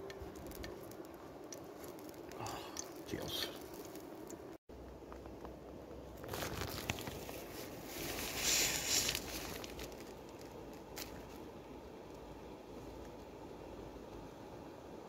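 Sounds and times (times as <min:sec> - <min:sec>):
steady low hiss: 0:00.0 - 0:15.0
tent nylon rustling and crinkling: 0:06.0 - 0:11.5.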